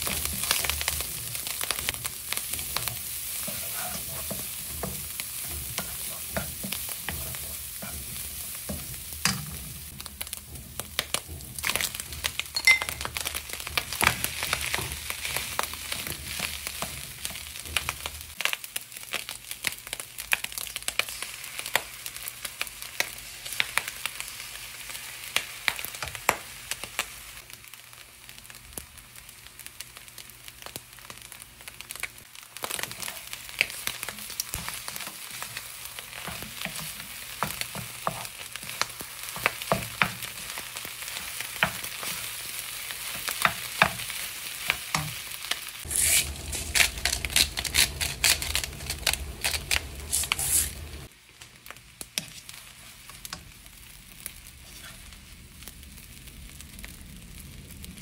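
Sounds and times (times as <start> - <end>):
wooden spatula scraping a pan: 0.0 - 12.5, 45.8 - 51.1, 54.6 - 55.2
rice sizzling in a wok: 0.0 - 58.0
low hum: 45.9 - 51.1.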